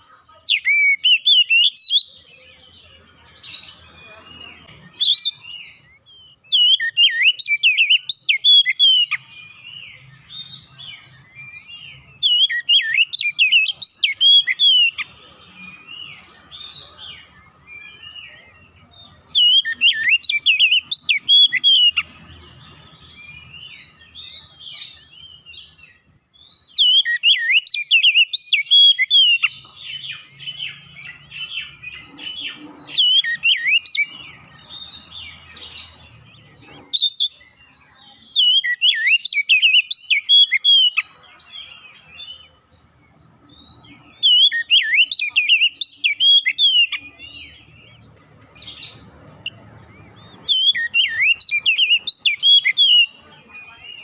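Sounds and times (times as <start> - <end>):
bird singing whistled notes: 0.0 - 54.0.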